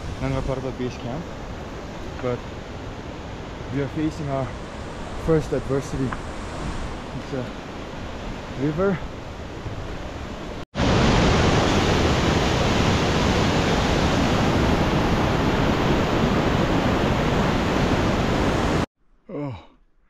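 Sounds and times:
distant water rush: 0:00.0 - 0:18.9
stream rushing over rocks: 0:10.4 - 0:18.9.

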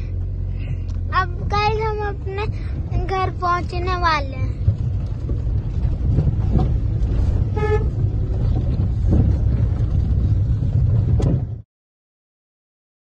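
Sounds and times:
car cabin road rumble: 0:00.0 - 0:11.7
vehicle horn toot: 0:07.4 - 0:08.0.

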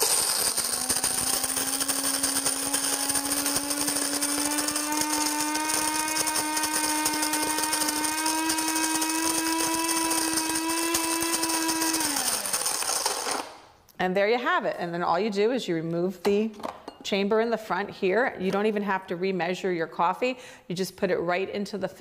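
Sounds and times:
coffee grinder grinding beans: 0:00.0 - 0:13.8.

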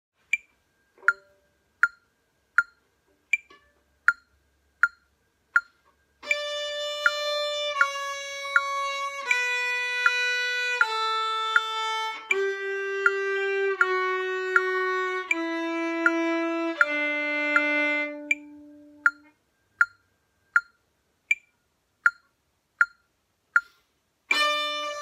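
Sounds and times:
metronome clicking: 0:00.3 - 0:25.0
viola bowing descending scale: 0:06.2 - 0:19.3.

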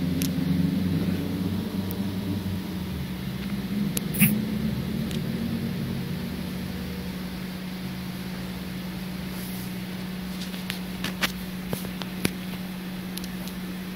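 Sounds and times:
low electrical hum: 0:00.0 - 0:13.9
short sharp clicks: 0:04.0 - 0:04.4.

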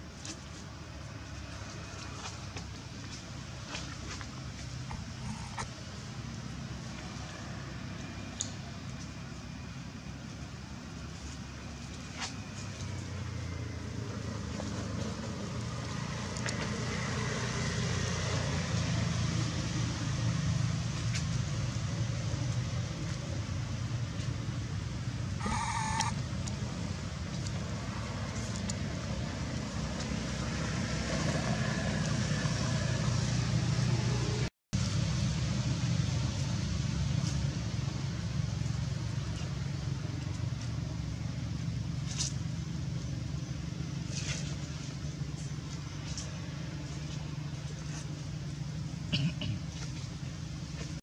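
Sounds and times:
short high-pitched squeal: 0:25.4 - 0:26.2.

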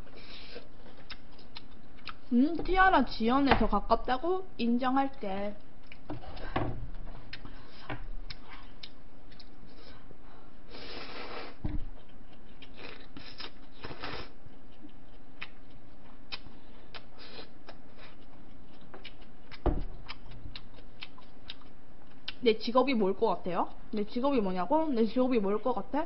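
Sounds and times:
chewing: 0:00.4 - 0:02.3, 0:05.1 - 0:06.5, 0:07.1 - 0:09.9, 0:11.2 - 0:22.4.

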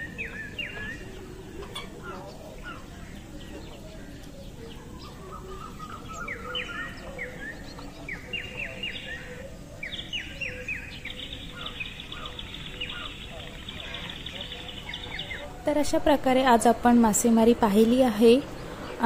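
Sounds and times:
birds chirping: 0:00.0 - 0:19.0
low steady background noise: 0:00.0 - 0:19.0
bird trilling: 0:05.0 - 0:19.0.

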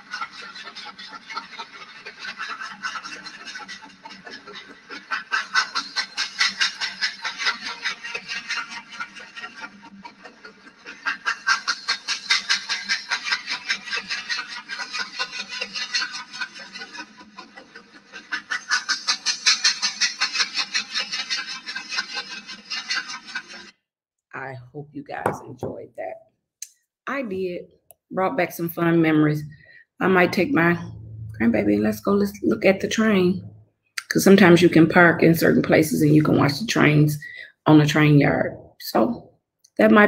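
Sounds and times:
train chugging: 0:00.0 - 0:23.6, 0:28.2 - 0:39.2.

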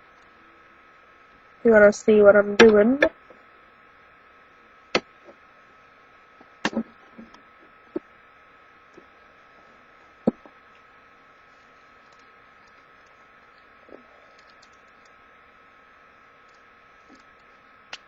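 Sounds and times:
faint electrical hum: 0:00.0 - 0:18.0.

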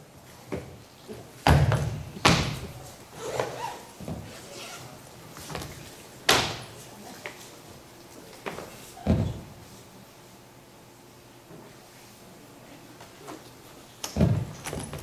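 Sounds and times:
suitcase knocks and thuds: 0:14.2 - 0:15.0.

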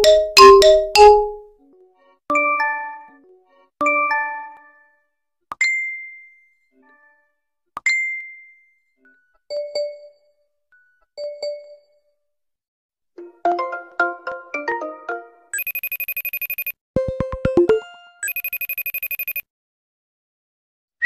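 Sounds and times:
notification chime: 0:00.0 - 0:01.4.

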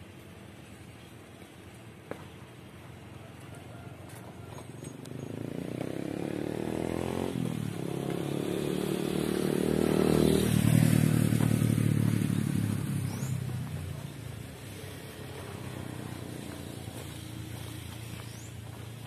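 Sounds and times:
motorcycle engine accelerating: 0:04.9 - 0:19.0.

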